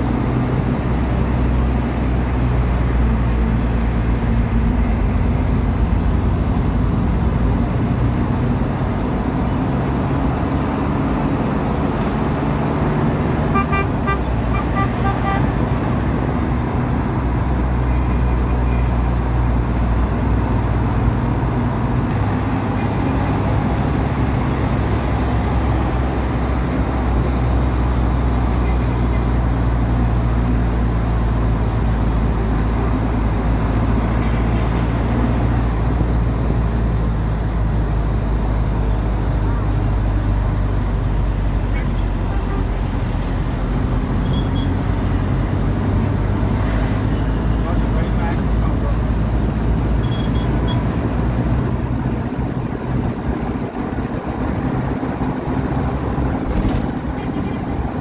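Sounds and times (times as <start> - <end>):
road traffic rumble: 0.0 - 58.0
vehicle horn short beeps: 13.5 - 15.5, 50.0 - 50.8.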